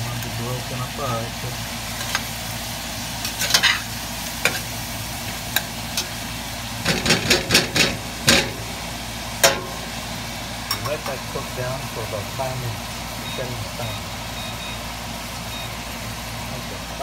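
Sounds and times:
frying sizzle: 0.0 - 17.0
spatula scraping a pot: 3.2 - 4.7.

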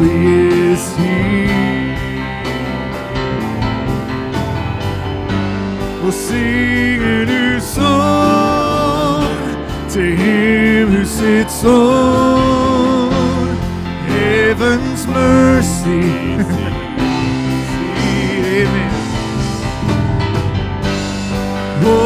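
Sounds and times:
acoustic guitar: 0.0 - 22.0
keyboard: 0.0 - 22.0
voices singing with vibrato: 5.9 - 19.8, 21.7 - 22.0.

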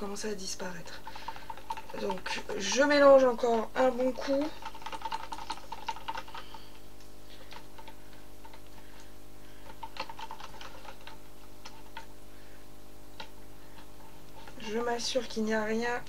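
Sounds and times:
whisk clicking against plastic jug: 1.1 - 12.1.

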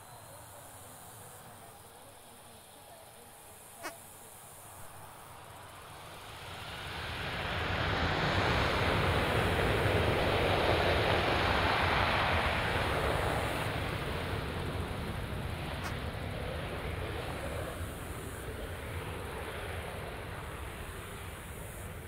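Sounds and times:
jet engines on runway: 0.0 - 22.0.

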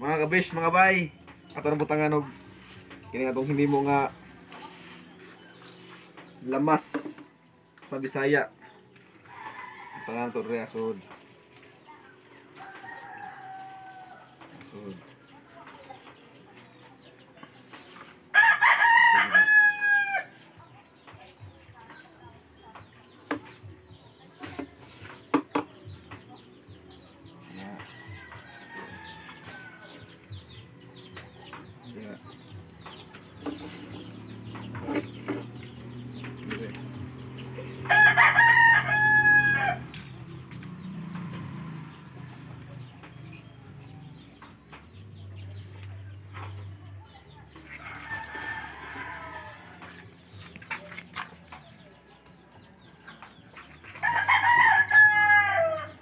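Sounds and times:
rooster crowing: 12.6 - 14.3, 18.4 - 20.3, 37.8 - 39.9, 47.8 - 49.9, 54.0 - 56.0.

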